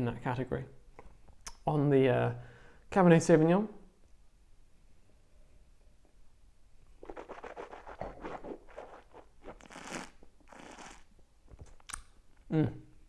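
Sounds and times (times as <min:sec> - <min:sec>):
wet slurping of wine: 0:07.0 - 0:11.1.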